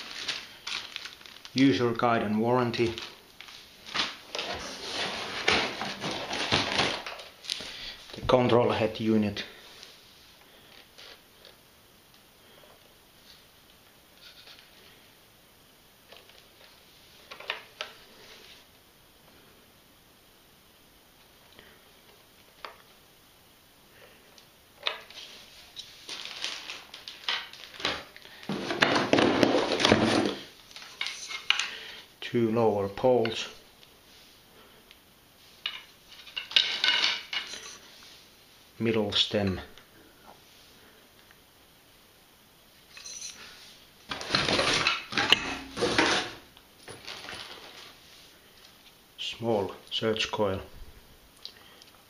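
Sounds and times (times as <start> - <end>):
cardboard rustling and scraping: 2.8 - 7.3, 25.1 - 31.2, 44.1 - 48.0.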